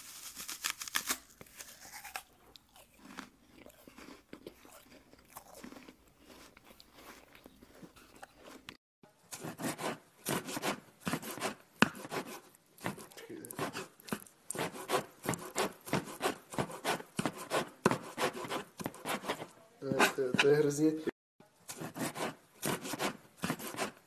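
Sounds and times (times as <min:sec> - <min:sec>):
knife cutting and crunching: 0:00.0 - 0:08.8, 0:09.4 - 0:20.5, 0:21.7 - 0:24.0
knife chopping on wooden block: 0:09.4 - 0:13.9, 0:14.5 - 0:20.6, 0:21.7 - 0:24.0.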